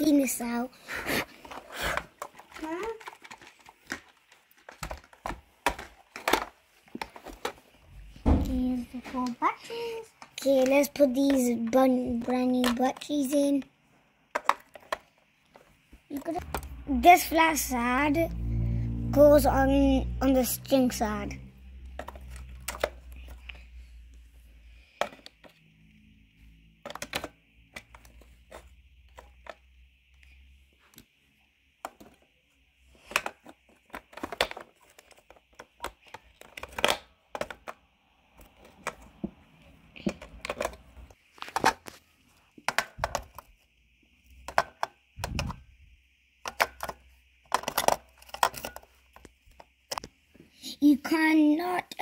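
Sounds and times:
batteries clicking into compartment: 33.0 - 37.8, 40.0 - 41.9, 46.4 - 50.1.

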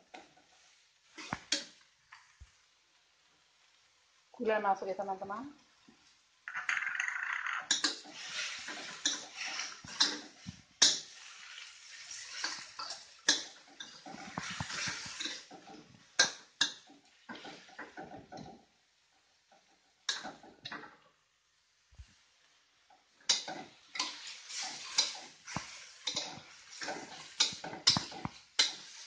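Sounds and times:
food sizzling in wok: 0.0 - 29.0
metal spatula scraping wok: 6.7 - 15.8, 23.3 - 29.0
spatula clanking against pan: 7.7 - 11.1, 12.4 - 18.5, 23.3 - 29.0.

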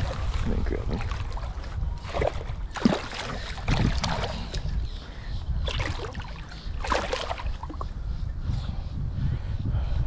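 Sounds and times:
fish thrashing water splashing: 1.0 - 4.3, 6.8 - 7.5
steady low rumble: 7.4 - 10.0.

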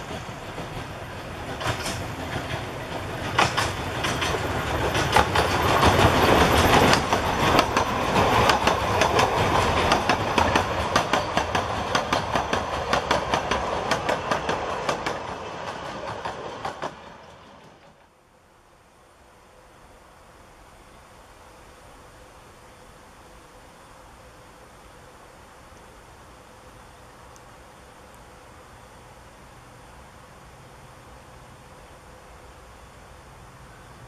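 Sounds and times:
locomotive rumble: 0.0 - 18.2
train wheels clickety-clack: 0.0 - 18.2.

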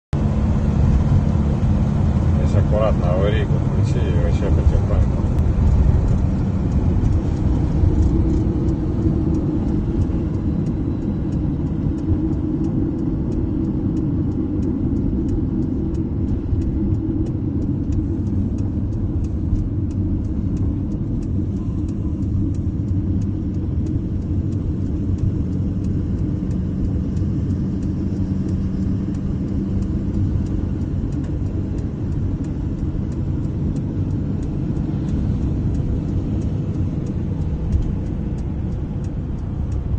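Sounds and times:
road and engine rumble: 0.1 - 39.9.

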